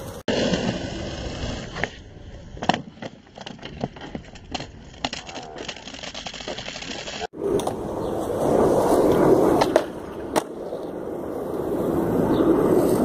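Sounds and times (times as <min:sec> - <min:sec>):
skateboard wheels rolling on concrete: 0:00.0 - 0:13.0
skateboard clacking on ground: 0:01.7 - 0:10.9.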